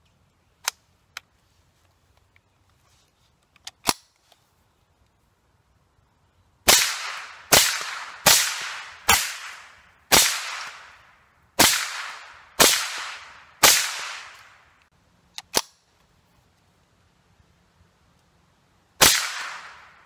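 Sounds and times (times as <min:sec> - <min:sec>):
rifle action clicks: 0:03.4 - 0:04.4
rifle shots echoing: 0:06.7 - 0:14.7, 0:19.0 - 0:20.0.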